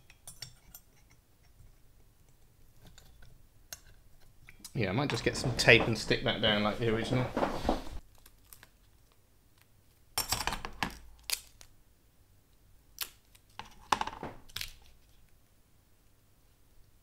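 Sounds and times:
rustling scrape on workbench: 5.1s - 8.0s.

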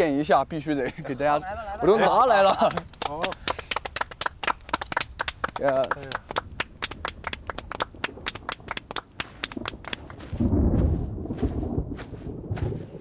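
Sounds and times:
group clapping: 2.0s - 10.3s
low rumbling noise: 6.5s - 13.0s.

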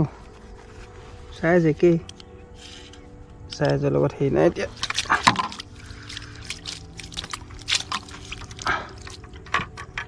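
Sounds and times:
water splashing and dripping: 4.6s - 10.0s.

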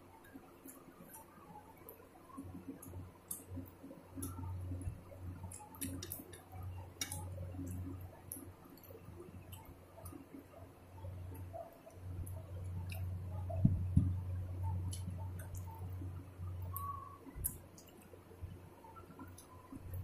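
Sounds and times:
low hum: 2.3s - 20.0s
chewing and mouth clicks: 14.7s - 16.0s.

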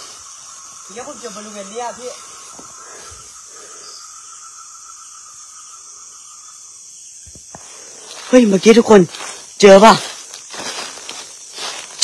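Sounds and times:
faint high steady tones: 0.0s - 7.1s
background hiss: 0.0s - 12.0s.

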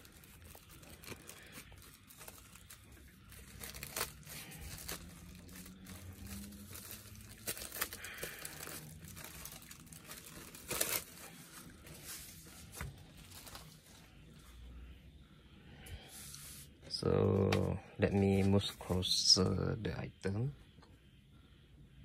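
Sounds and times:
plastic film crinkling: 0.0s - 14.4s.

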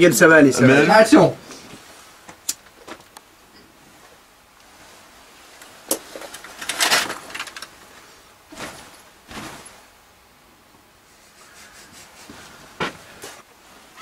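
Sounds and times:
clothing rustle: 3.8s - 10.0s, 11.0s - 14.0s.

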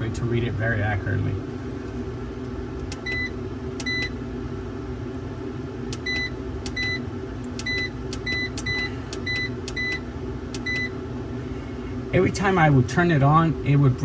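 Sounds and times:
steady low hum: 0.0s - 14.0s
control panel short high beeps: 3.0s - 4.1s, 6.0s - 7.0s, 7.6s - 10.0s.

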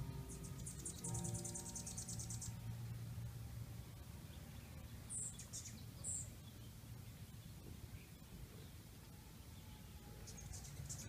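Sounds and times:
hummingbird chip calls: 0.0s - 2.6s
low steady hum: 0.0s - 11.0s.

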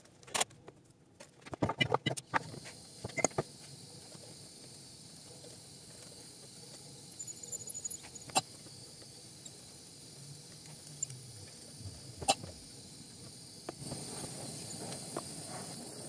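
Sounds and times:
gas torch hissing: 2.3s - 16.0s
tiny ticks: 7.5s - 12.6s.

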